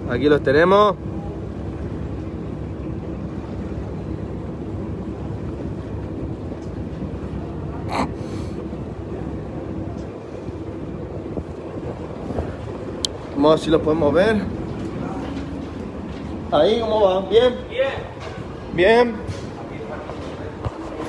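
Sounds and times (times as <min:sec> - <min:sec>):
boat engine hum: 0:00.0 - 0:21.0
wind: 0:00.0 - 0:21.0.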